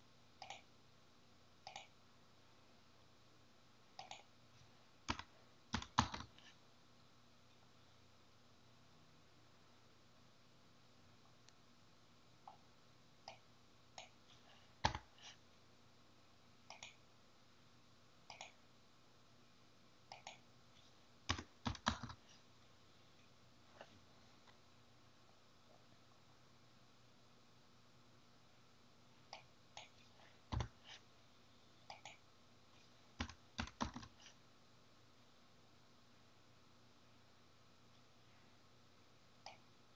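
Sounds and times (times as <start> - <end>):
computer mouse clicking: 0.4 - 0.7, 1.6 - 2.0, 4.0 - 4.3, 5.1 - 6.5, 16.7 - 17.0, 18.3 - 18.6, 20.1 - 20.4, 21.3 - 22.2, 33.2 - 34.4.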